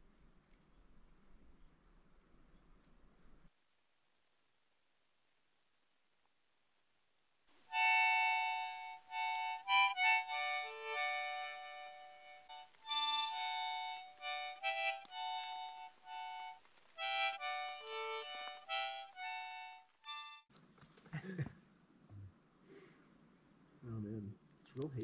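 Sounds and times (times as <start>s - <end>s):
solo harmonica tune: 7.7s - 20.5s.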